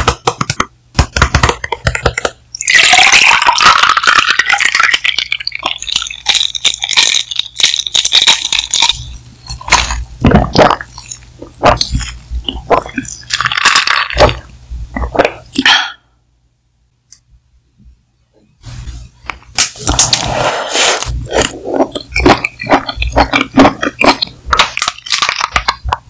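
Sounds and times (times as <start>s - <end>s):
ice clicking and clinking: 1.9s - 10.0s, 21.4s - 26.0s
slurping through a straw: 19.8s - 25.8s.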